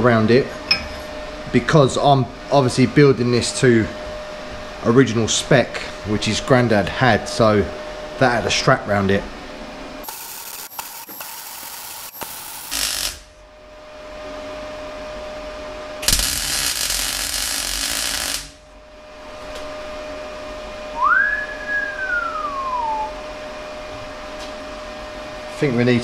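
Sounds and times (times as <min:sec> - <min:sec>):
welding arc crackling: 0:10.0 - 0:13.4, 0:16.0 - 0:18.6
rising and falling whistle: 0:20.9 - 0:23.5.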